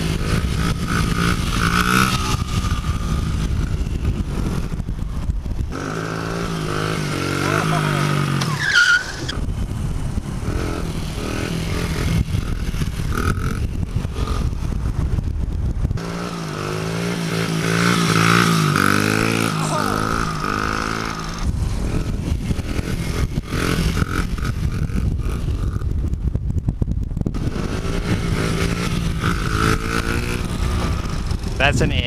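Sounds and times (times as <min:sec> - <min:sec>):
small motorbike engine revving: 0:05.7 - 0:09.4, 0:16.0 - 0:25.9, 0:27.4 - 0:32.0.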